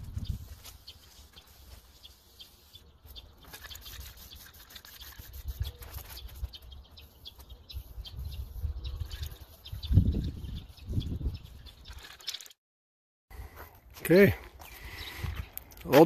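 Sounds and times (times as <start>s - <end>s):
spray paint can hissing: 0.4s - 2.8s, 3.4s - 6.5s.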